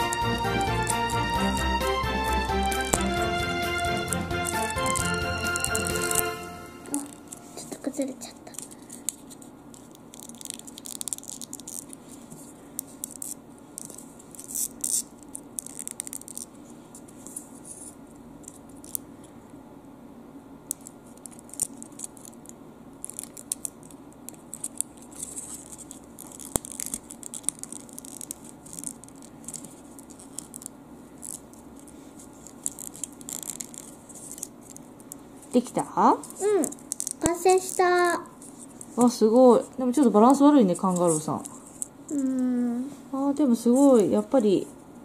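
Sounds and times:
steady low hum: 0:00.0 - 0:45.0
paper rustling and scraping: 0:04.4 - 0:18.0, 0:24.5 - 0:34.8
small clicks of paper pieces: 0:08.4 - 0:12.0, 0:20.7 - 0:35.2, 0:36.3 - 0:37.9.

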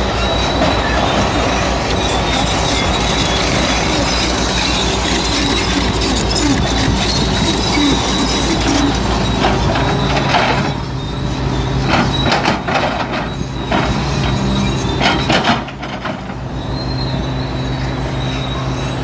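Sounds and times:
excavator diesel engine running: 0:00.0 - 0:19.0
bucket scraping and earth rattling: 0:00.2 - 0:10.8.

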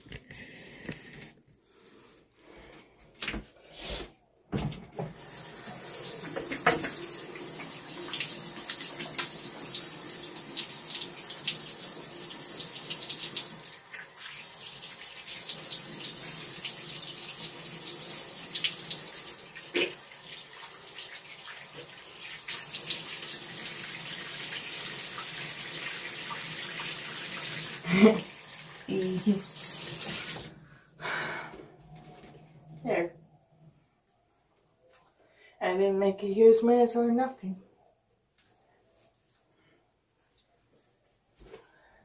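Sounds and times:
hands washing under water: 0:05.1 - 0:09.8
faucet running: 0:05.1 - 0:30.5.

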